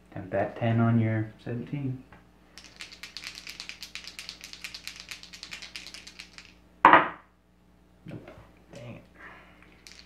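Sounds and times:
dice rattling in a hand: 0:02.6 - 0:06.6, 0:09.6 - 0:10.0.

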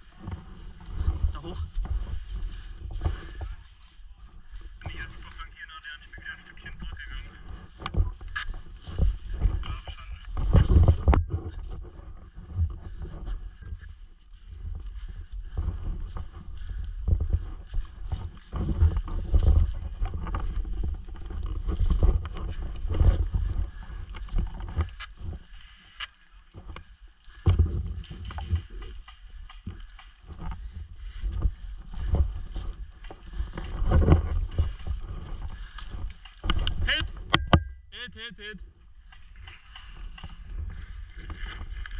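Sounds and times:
low wind rumble: 0:00.0 - 0:38.0, 0:38.6 - 0:41.9
small clicks and knocks: 0:26.0 - 0:30.6, 0:33.0 - 0:37.7, 0:39.0 - 0:41.9.

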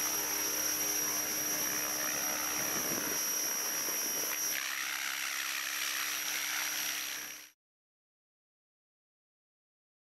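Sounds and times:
toy helicopter motor whine: 0:00.0 - 0:07.6.

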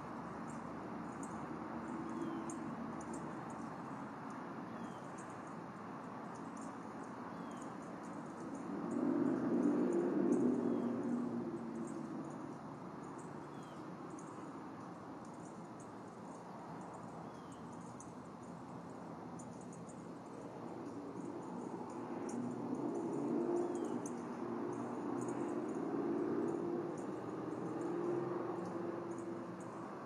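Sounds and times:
insect clicking: 0:19.4 - 0:30.0.

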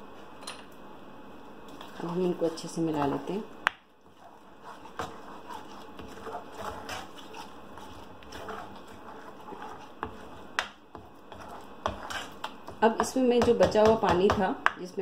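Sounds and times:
spatula scraping frying pan: 0:04.0 - 0:12.9.

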